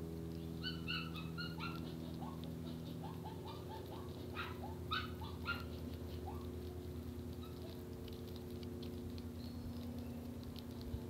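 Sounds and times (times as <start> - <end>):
steady low hum: 0.0 - 11.0
sparrows chirping: 0.2 - 7.7, 9.2 - 10.6.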